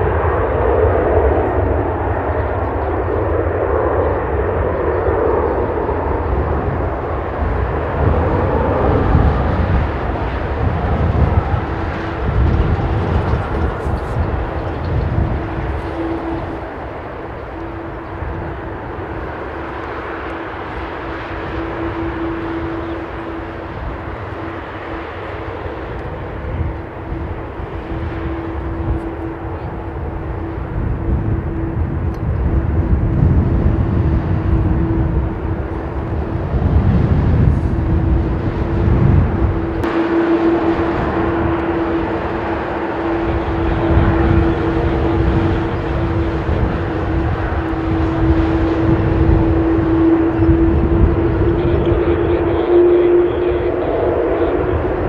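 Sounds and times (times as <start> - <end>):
jet engines idling: 0.0 - 55.0
low rumble: 0.0 - 55.0
steady hum: 5.6 - 55.0.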